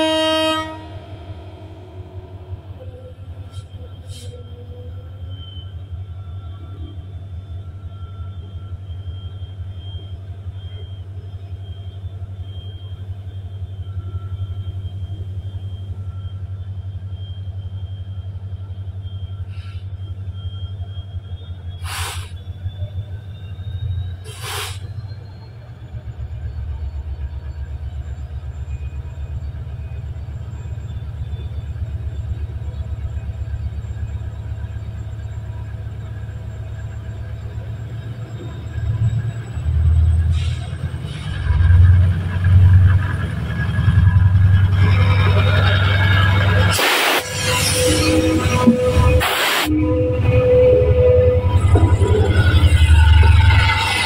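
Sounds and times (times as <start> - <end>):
faint whines: 0.0 - 54.0
locomotive engine rumbling: 0.0 - 54.0
short sharp hisses: 21.8 - 22.4, 24.3 - 24.8, 46.7 - 47.4.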